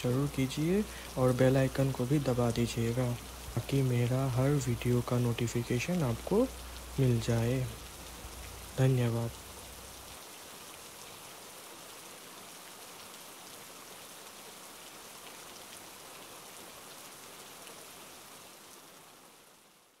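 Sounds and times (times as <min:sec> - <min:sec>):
raindrop ticks: 0:00.0 - 0:10.2
steady rain falling: 0:00.0 - 0:20.0.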